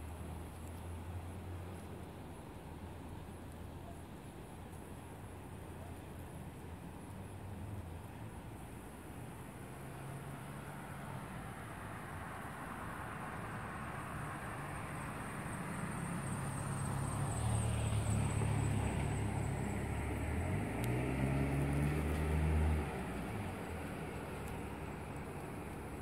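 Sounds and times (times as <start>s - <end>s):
vehicle engine passing by: 15.2s - 25.2s.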